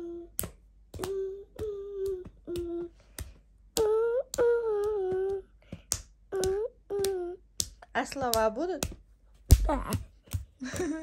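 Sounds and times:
boy humming a tune: 0.0s - 5.6s, 6.3s - 7.4s.

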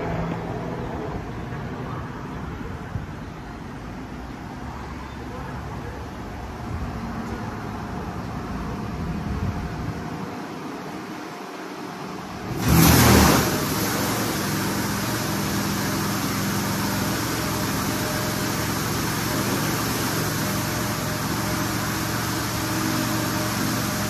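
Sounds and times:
high-pressure water spray: 12.5s - 24.0s.

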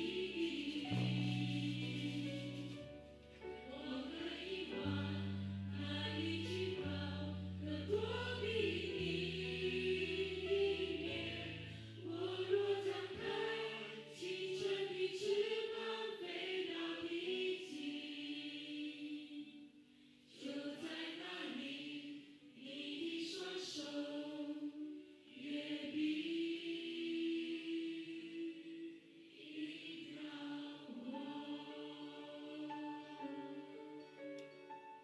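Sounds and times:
bass notes: 0.0s - 12.8s
keyboard: 0.0s - 23.0s
group singing worship song: 0.0s - 34.0s.

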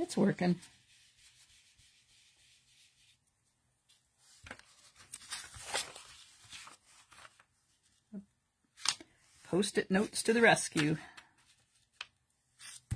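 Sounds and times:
paper rubbing on a mat: 0.6s - 3.2s.

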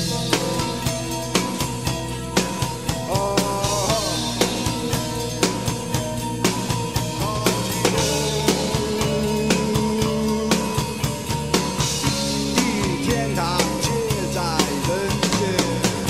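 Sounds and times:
man singing: 0.0s - 1.2s, 3.0s - 5.4s, 7.0s - 16.0s
drum kit beat: 0.0s - 16.0s
live rock band: 0.0s - 16.0s.

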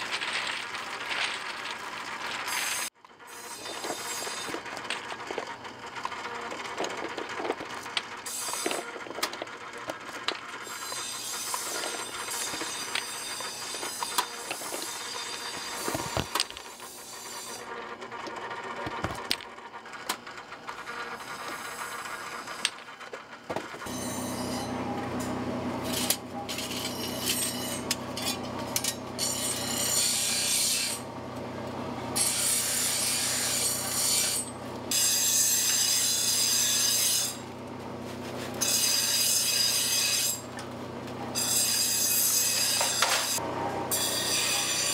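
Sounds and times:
wood rubbing and scraping: 0.0s - 2.9s, 3.5s - 19.4s, 37.7s - 38.8s
low mechanical hum: 0.0s - 44.9s.

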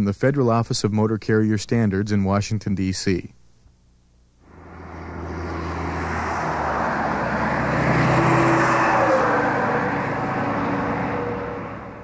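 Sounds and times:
truck engine and tyre noise: 4.5s - 12.0s.

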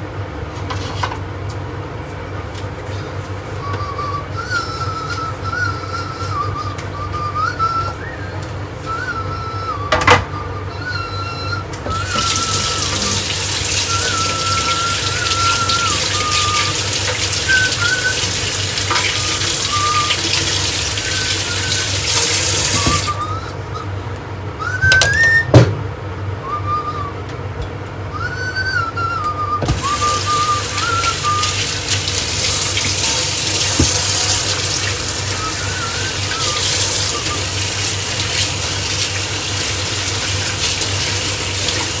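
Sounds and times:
person whistling a tune: 3.5s - 24.0s, 24.6s - 25.7s, 26.4s - 27.4s, 28.1s - 38.6s
water running from a tap: 12.0s - 23.6s, 29.7s - 42.0s.

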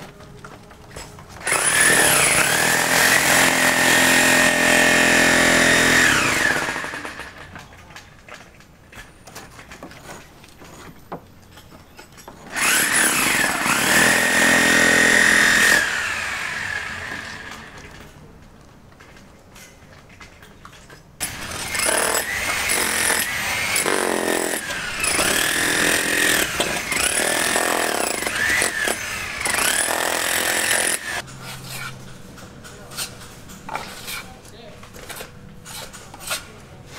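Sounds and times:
power tool motor whining: 12.5s - 17.8s.

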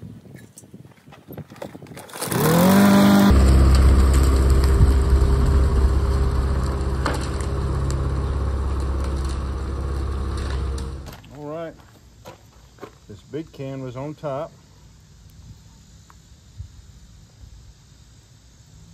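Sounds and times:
lawn mower pull-start cord: 2.0s - 11.2s
lawn mower engine running: 2.1s - 11.1s.

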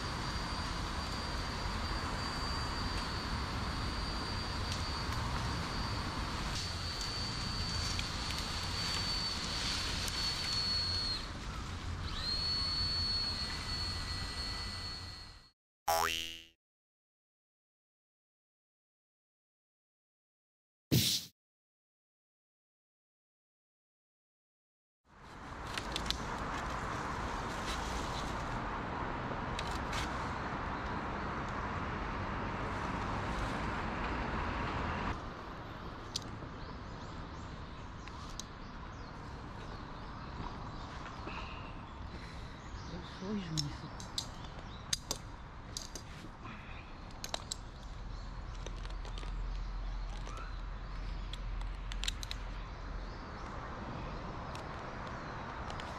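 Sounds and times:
winch whine: 0.0s - 15.5s
wind: 0.0s - 16.4s, 25.0s - 55.9s
distant road traffic: 25.1s - 55.9s.

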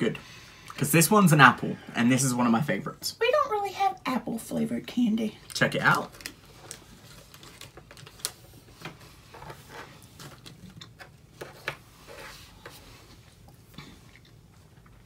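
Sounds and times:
chewing jelly sweet: 10.5s - 11.2s, 13.3s - 15.0s.

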